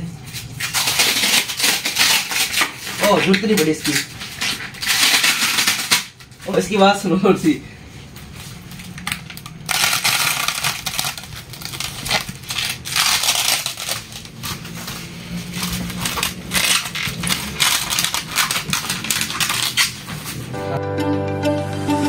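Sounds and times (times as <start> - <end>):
plastic wrap crinkling: 0.2 - 20.5.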